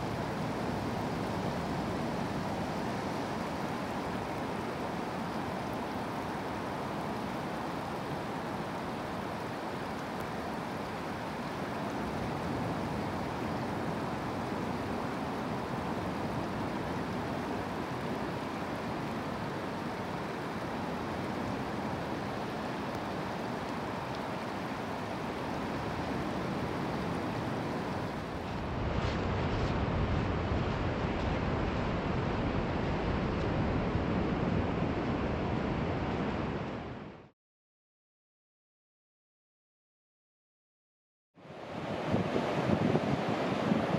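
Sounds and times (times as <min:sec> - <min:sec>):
wind on microphone: 0:25.6 - 0:37.1, 0:41.7 - 0:43.9
ocean surf breaking: 0:41.6 - 0:43.9.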